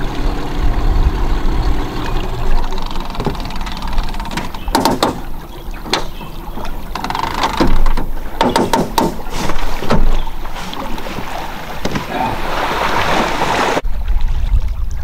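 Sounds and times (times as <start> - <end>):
wind on microphone: 0.0 - 4.8, 13.8 - 15.0
knocks and clunks inside boat: 0.0 - 13.2.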